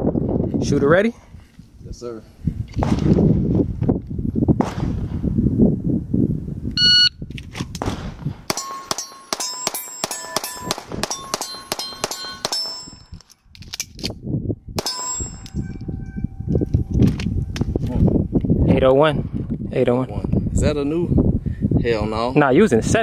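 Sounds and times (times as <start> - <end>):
shot timer beep: 6.8 - 7.2
pistol shots: 7.8 - 13.0, 14.8 - 15.4
steel target ringing: 8.5 - 13.2, 14.8 - 16.9.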